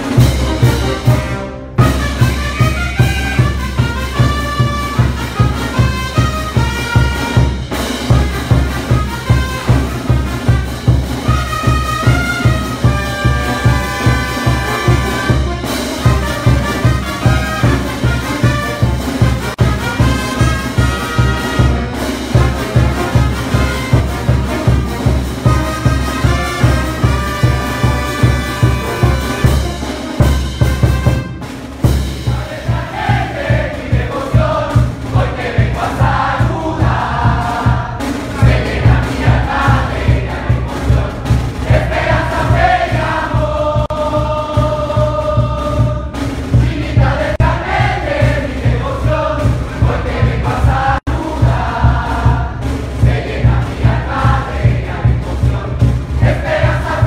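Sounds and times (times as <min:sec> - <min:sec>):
wind instrument melody: 0:00.0 - 0:31.7
steady drumbeat: 0:00.0 - 0:57.0.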